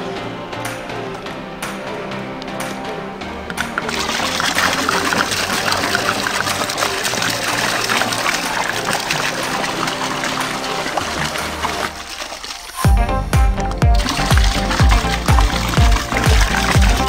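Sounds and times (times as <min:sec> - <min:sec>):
background music: 0:00.0 - 0:17.0
soda fizzing: 0:03.5 - 0:12.9, 0:13.8 - 0:17.0.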